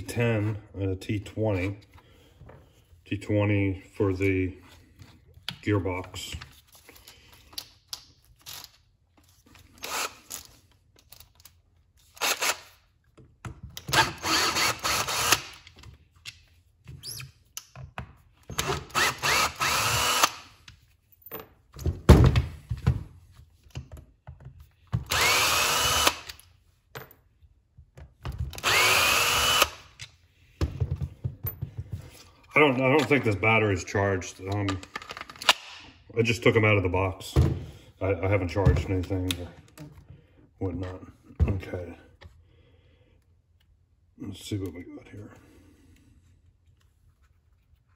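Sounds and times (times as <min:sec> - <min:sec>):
cordless drill whining: 0:09.8 - 0:10.2, 0:13.9 - 0:15.6, 0:18.6 - 0:20.5, 0:25.1 - 0:26.4, 0:28.6 - 0:29.9.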